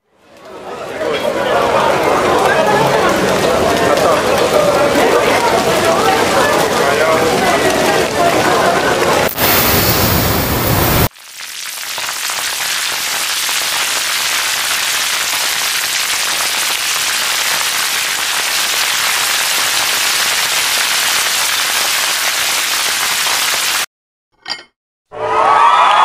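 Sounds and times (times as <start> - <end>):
hot oil sizzling: 9.2 - 23.9.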